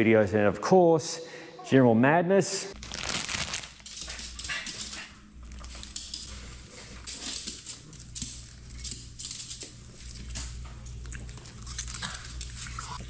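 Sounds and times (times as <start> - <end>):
dog claws tapping on floor: 3.8 - 6.3, 7.0 - 10.8.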